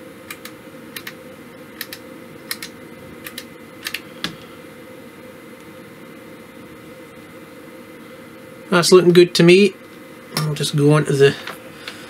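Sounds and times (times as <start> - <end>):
faint steady hum: 0.0 - 12.0
power switch clicking: 1.8 - 4.0.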